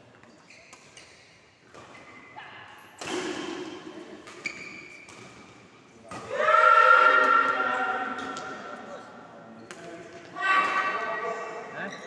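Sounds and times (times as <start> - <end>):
sharp knocks from badminton play: 3.0 - 6.4.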